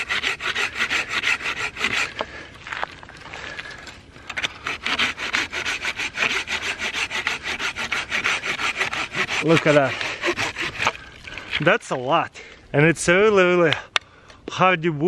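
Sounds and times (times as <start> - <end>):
hand saw cutting wood: 0.0 - 2.4, 4.3 - 11.7.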